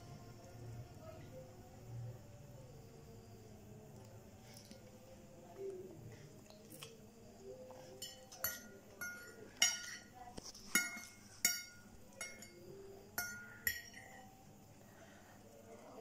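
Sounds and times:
fork clinking on ceramic plate: 8.0s - 10.1s, 10.7s - 12.6s, 13.2s - 14.2s.

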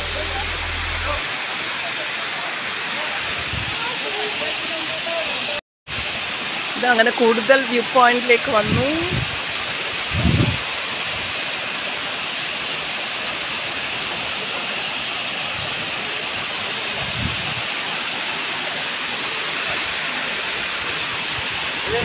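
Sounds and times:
low thumps: 0.0s - 1.2s
waterfall rushing: 0.0s - 22.0s.

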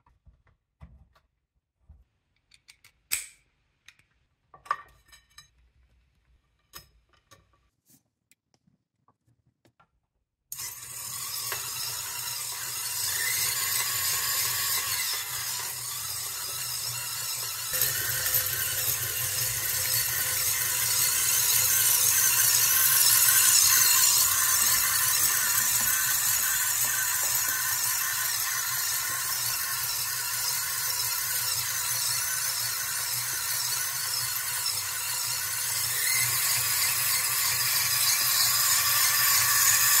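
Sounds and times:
model jet engine whine: 10.5s - 40.0s.

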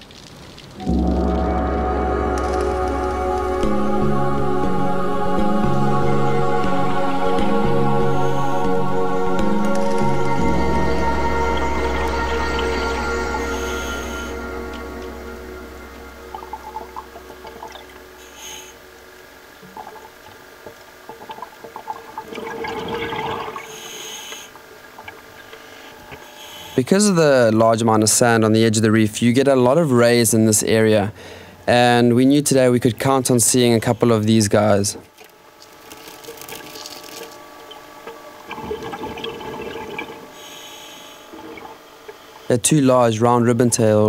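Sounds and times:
faint steady hum: 0.0s - 44.0s
scuba exhaust bubbles gurgling: 16.3s - 18.8s, 19.6s - 26.3s, 36.3s - 42.5s
gurgling exhaled bubbles: 21.1s - 23.9s, 38.4s - 40.4s.

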